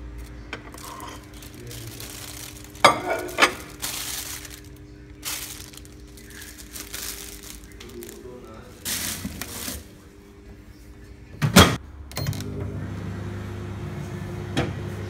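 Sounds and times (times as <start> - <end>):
plastic bag rustling: 0.0 - 10.2
steady low hum: 0.0 - 12.1.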